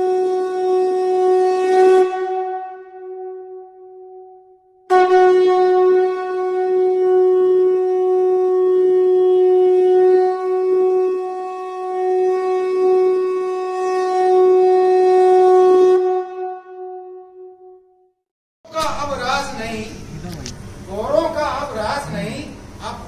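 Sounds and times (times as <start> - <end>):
conch shell blast: 0.0 - 17.8.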